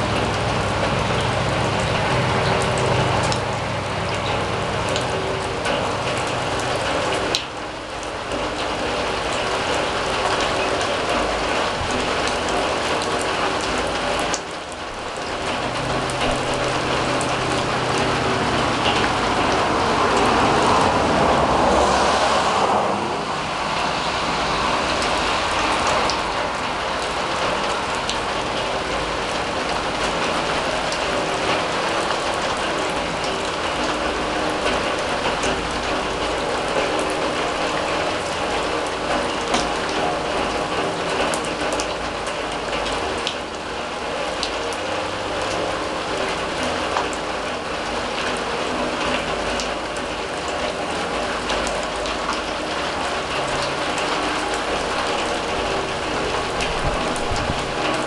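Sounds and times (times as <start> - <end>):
rain on a steel drum: 0.0 - 58.0
water drips: 0.0 - 58.0
vehicle passing: 15.6 - 28.0.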